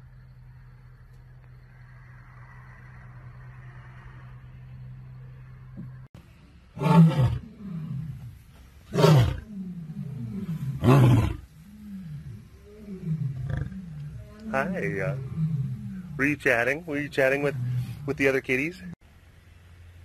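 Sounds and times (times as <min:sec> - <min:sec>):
lioness roaring: 0:06.7 - 0:19.0
lioness grunting: 0:08.9 - 0:19.0.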